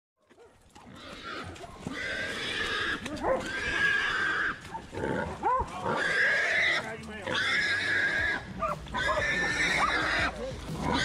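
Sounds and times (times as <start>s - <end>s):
hog squealing: 1.0s - 4.6s, 5.9s - 11.0s.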